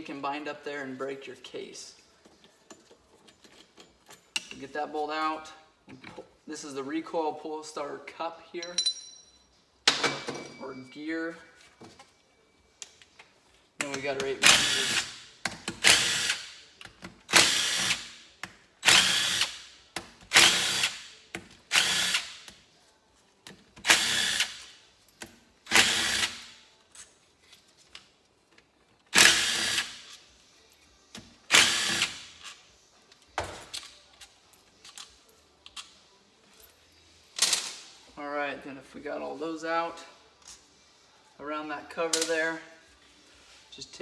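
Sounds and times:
cordless drill bursts: 17.4s - 18.0s, 18.8s - 19.6s, 21.7s - 22.3s, 29.2s - 29.9s.

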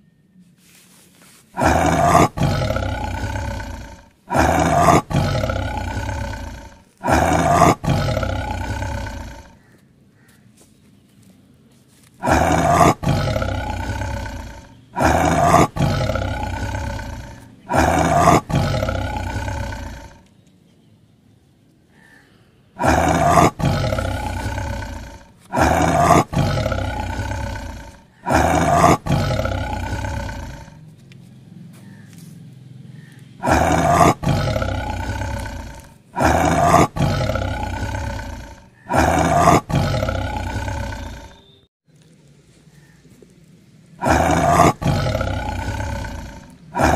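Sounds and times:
big cat roaring: 1.6s - 9.7s, 12.2s - 20.2s, 22.8s - 30.8s, 33.4s - 41.4s, 44.0s - 46.9s.

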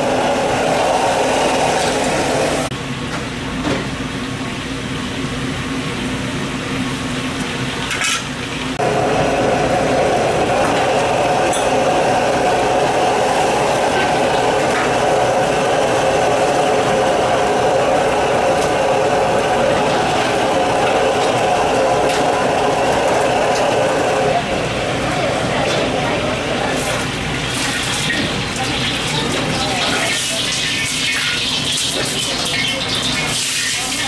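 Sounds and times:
mechanical hum: 0.0s - 34.0s
utensils clinking on cookware: 26.7s - 34.0s.

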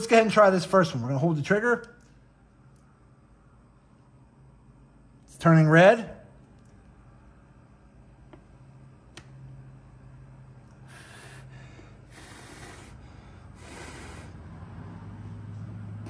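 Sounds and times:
low steady hum: 0.0s - 16.0s
puffs of breath: 10.8s - 14.6s.

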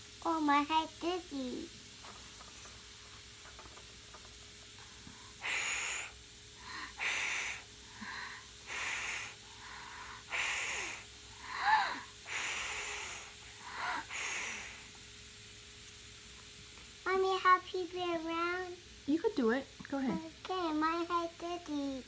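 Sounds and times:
child blowing breathy puffs: 4.8s - 15.0s.

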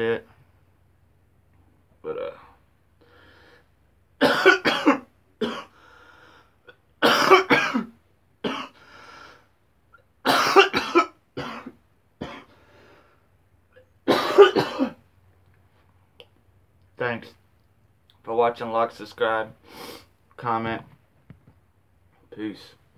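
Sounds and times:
man coughing: 4.2s - 5.7s, 7.0s - 7.9s, 10.3s - 12.5s, 14.1s - 15.0s
wheezy breaths: 5.7s - 6.6s, 12.5s - 13.3s.

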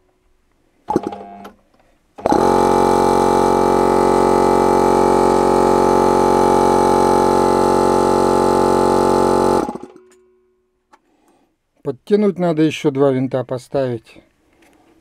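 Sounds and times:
air compressor humming: 0.9s - 1.5s, 2.2s - 10.0s
motor running down tone: 2.2s - 10.0s.

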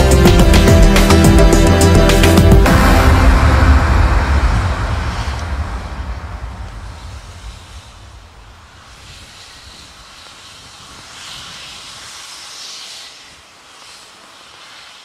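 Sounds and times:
low rumble: 0.0s - 10.0s
steady hiss: 0.0s - 15.0s.

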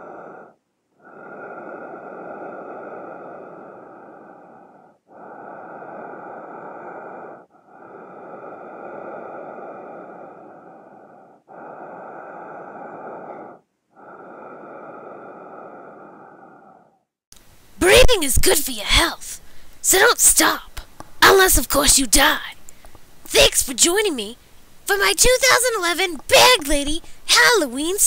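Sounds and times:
person breathing heavily: 0.0s - 17.2s, 27.0s - 27.3s.

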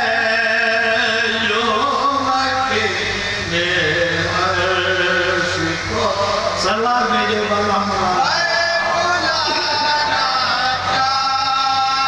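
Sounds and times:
lead reciter singing: 0.0s - 12.0s.

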